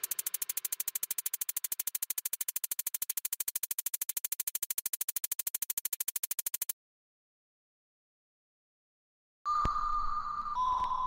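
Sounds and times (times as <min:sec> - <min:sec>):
rapid electronic pulsing: 0:00.0 - 0:06.7.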